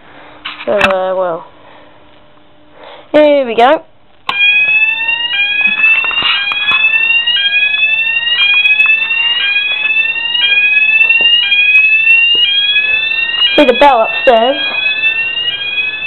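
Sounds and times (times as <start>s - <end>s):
fire alarm rising sweep tone: 4.3s - 16.0s.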